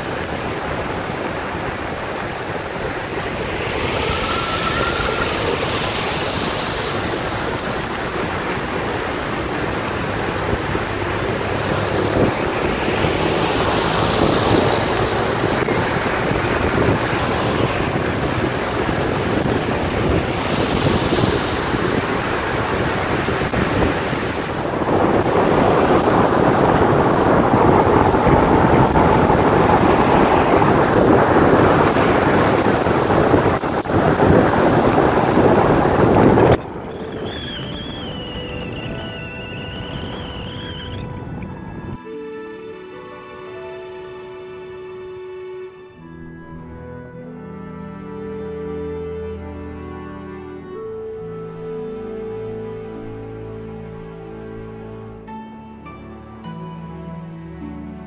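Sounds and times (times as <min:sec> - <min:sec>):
tyres hissing on wet road: 0:00.0 - 0:41.0
wind rumbling on microphone: 0:00.0 - 0:55.4.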